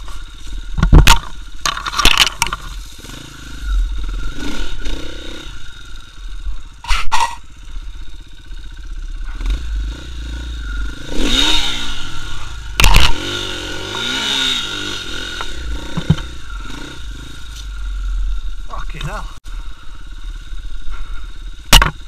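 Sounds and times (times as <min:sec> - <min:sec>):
motorcycle engine revving: 0:00.0 - 0:22.0
sharp knocks: 0:15.9 - 0:16.3.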